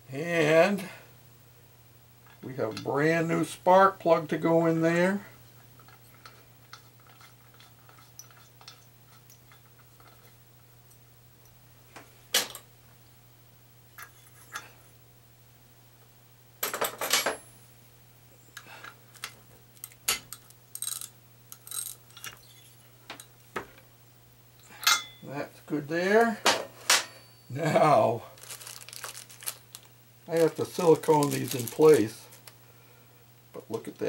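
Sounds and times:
metal clinking: 24.7 - 25.2.

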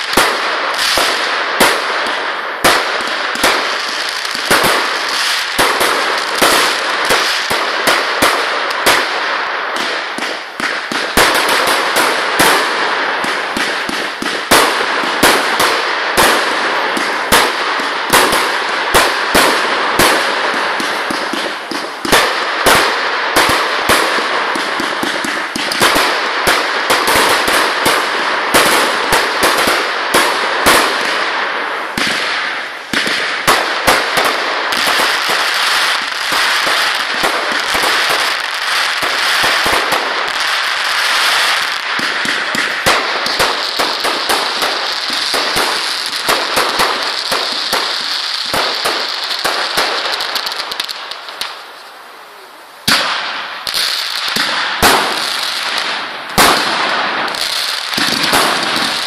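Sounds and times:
firework bangs: 0.0 - 59.0
firework crackle: 0.0 - 59.0.

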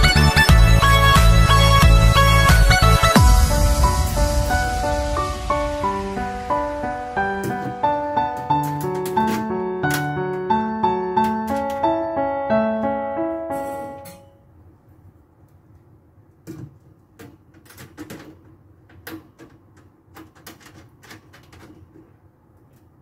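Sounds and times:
background music: 0.0 - 14.2.

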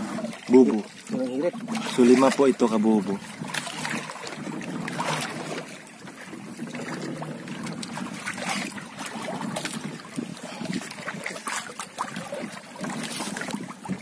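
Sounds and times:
water lapping against a boat: 0.0 - 14.0.

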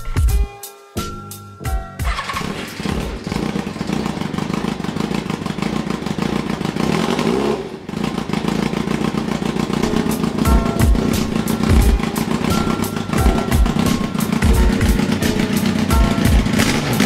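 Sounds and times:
music: 0.0 - 3.6, 9.4 - 17.0
motorcycle engine running: 2.0 - 17.0.

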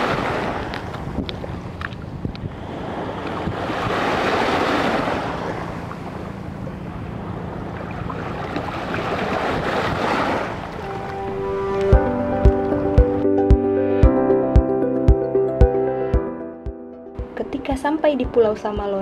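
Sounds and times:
wind on the microphone: 0.0 - 5.2, 9.0 - 10.6
waves washing on sandy shore: 0.0 - 11.2.

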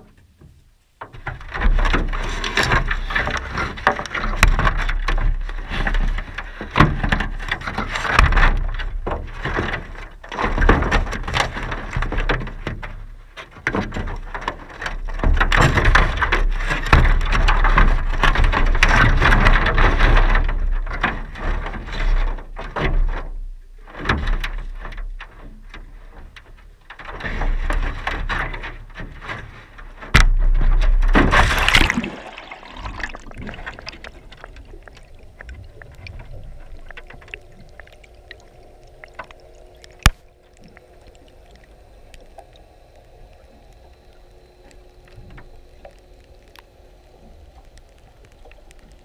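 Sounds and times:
faint steady hum: 0.0 - 49.0
muffled underwater sound: 29.6 - 49.0
splash into water: 31.2 - 40.5
faint clicks: 33.5 - 49.0.

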